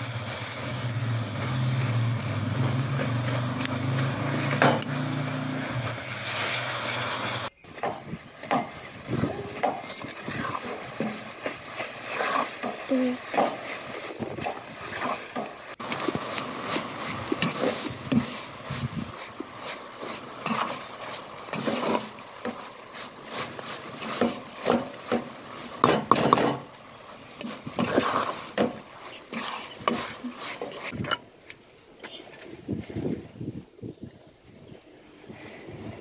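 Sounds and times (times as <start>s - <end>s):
spoon scraping flour in a pot: 29.3s - 31.0s.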